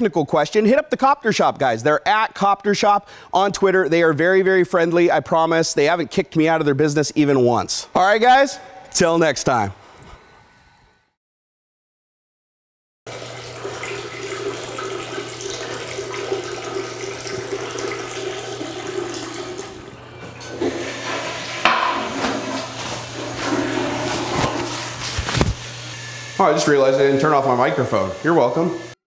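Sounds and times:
water running: 0:13.1 - 0:29.0.

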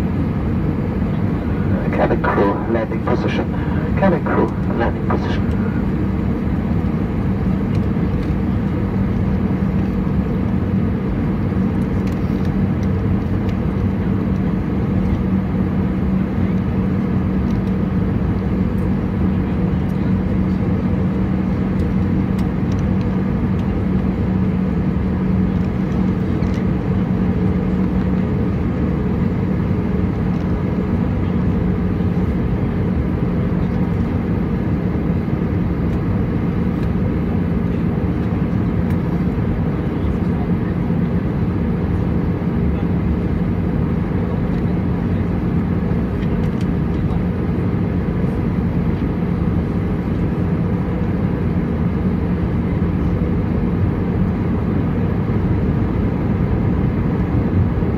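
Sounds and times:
jet engines droning: 0:00.0 - 0:57.9
steady low hum: 0:00.0 - 0:57.9.

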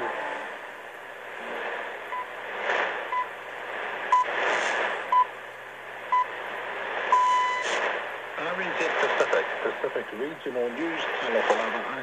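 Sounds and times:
shortwave radio hiss: 0:00.0 - 0:12.0
time signal pips: 0:07.1 - 0:07.8.

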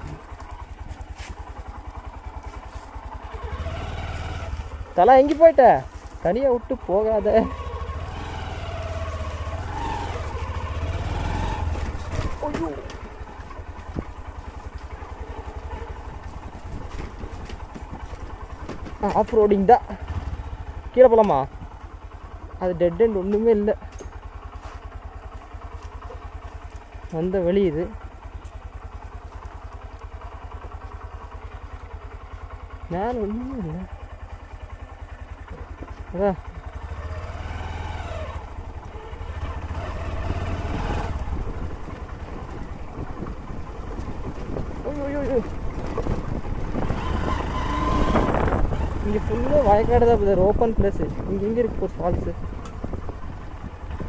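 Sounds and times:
motorcycle engine at low revs: 0:00.0 - 0:54.0.

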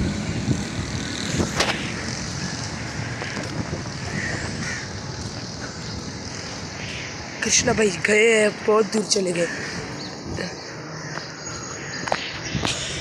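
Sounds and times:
crows cawing: 0:02.3 - 0:05.9, 0:09.4 - 0:12.6.

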